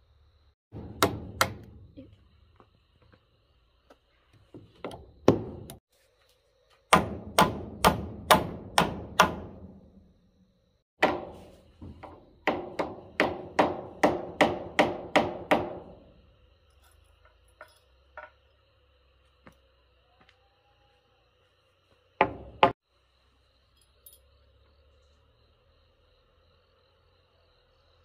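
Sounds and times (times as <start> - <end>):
hammer striking: 0.7 - 2.0, 4.8 - 5.8, 6.9 - 9.9, 11.0 - 16.2, 22.2 - 22.8.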